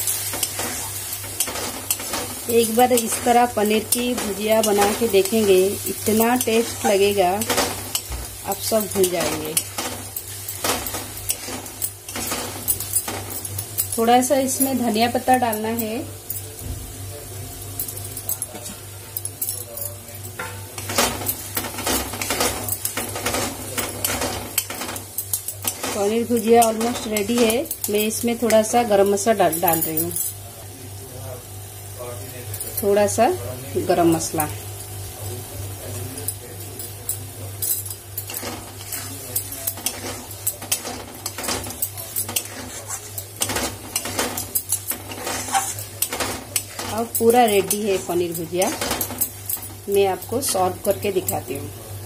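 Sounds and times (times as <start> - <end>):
spatula scraping metal pan: 45.0 - 45.9.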